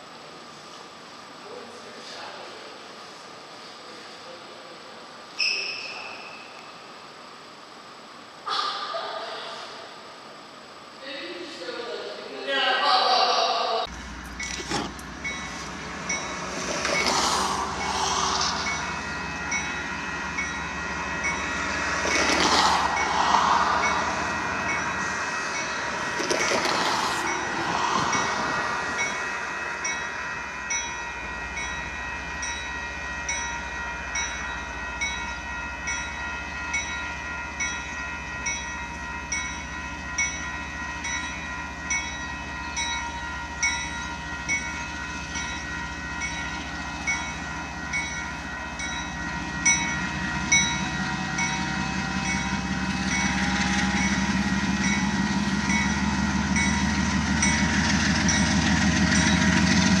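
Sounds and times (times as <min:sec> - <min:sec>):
train rumble: 0:13.2 - 1:00.0
railroad bell ringing: 0:13.9 - 1:00.0.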